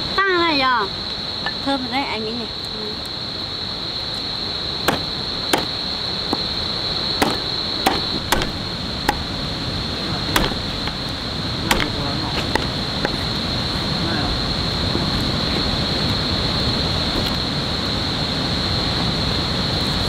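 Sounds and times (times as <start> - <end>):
insects chirring: 0.0 - 20.0
knife chopping on wooden board: 4.9 - 5.7, 7.2 - 9.3, 10.3 - 11.0, 11.7 - 13.2.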